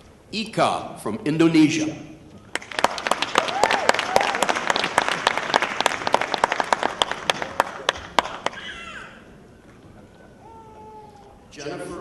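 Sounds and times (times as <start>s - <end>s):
audience applauding: 2.5s - 9.2s.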